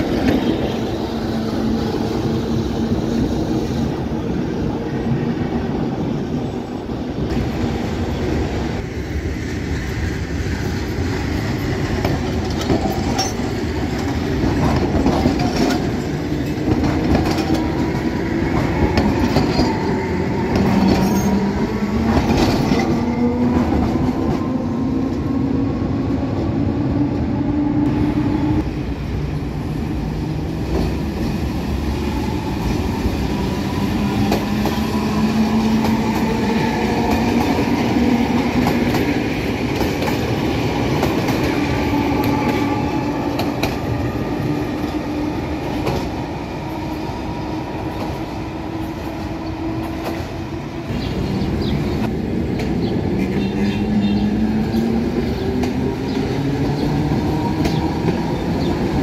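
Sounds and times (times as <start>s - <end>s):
tram rumbling on rails: 0.0s - 59.0s.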